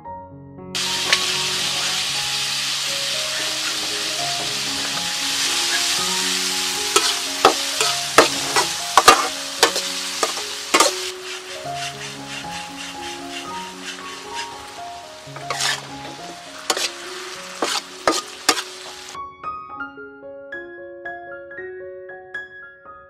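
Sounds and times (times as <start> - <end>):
meat sizzling in hot oil: 0.8 - 19.2
metal ladle scraping a wok: 0.8 - 19.2.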